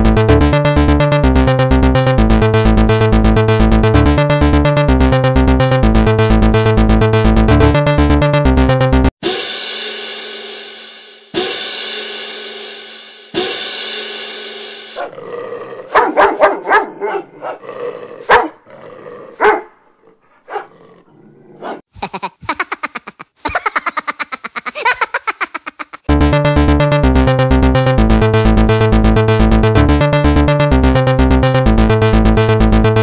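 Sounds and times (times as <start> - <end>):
dog barking: 15.9 - 17.6, 18.3 - 18.6, 19.4 - 20.8, 21.6 - 21.8.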